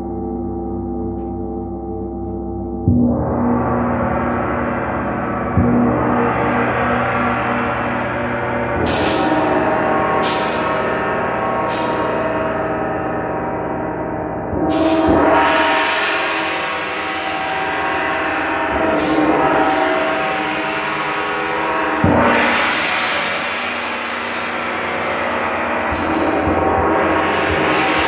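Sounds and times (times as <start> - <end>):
metal gongs ringing: 0.0 - 28.0.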